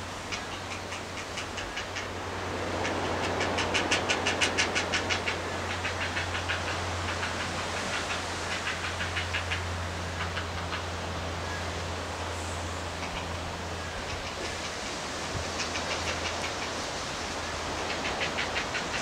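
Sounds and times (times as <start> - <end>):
rushing background noise: 0.0 - 19.0
heron chicks clicking chatter: 2.8 - 10.9, 13.0 - 13.4, 15.5 - 16.8, 17.7 - 19.0.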